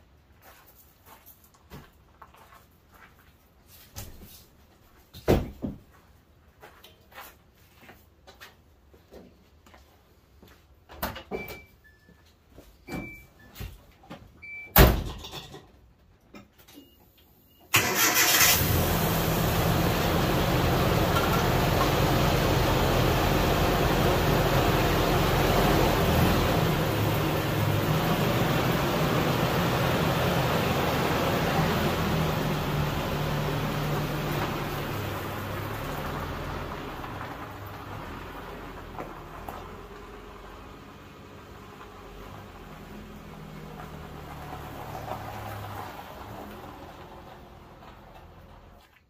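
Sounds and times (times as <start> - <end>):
truck engine starting and idling: 17.7 - 48.8.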